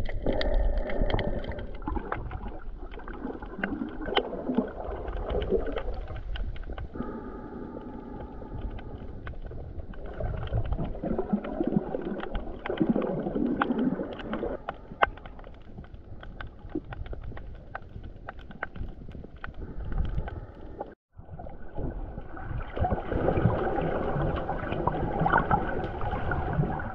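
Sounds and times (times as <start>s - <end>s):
sharp clicks underwater: 0.0s - 21.0s
muffled underwater water noise: 0.0s - 26.9s
muffled water sloshing: 0.0s - 26.9s.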